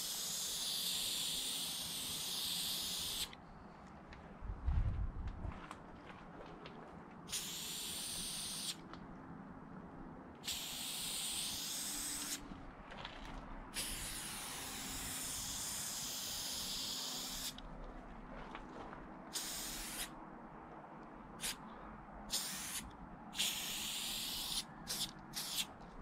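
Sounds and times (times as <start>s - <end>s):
spray paint can hissing: 0.0s - 3.4s, 7.3s - 8.8s, 10.4s - 12.4s, 13.7s - 17.6s, 19.3s - 20.2s, 21.4s - 21.6s, 22.3s - 25.7s.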